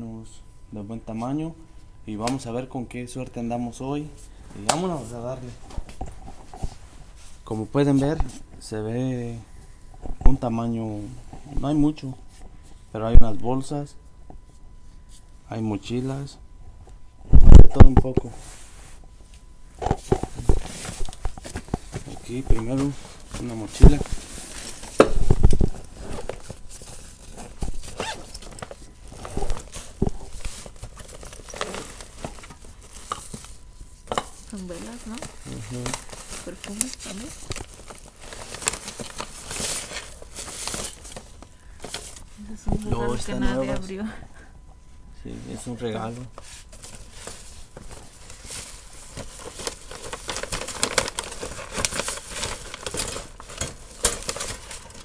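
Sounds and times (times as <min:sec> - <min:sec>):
fabric and paper rustling: 0:18.3 - 0:43.8, 0:45.5 - 0:55.0
backpack zipper: 0:27.9 - 0:28.4.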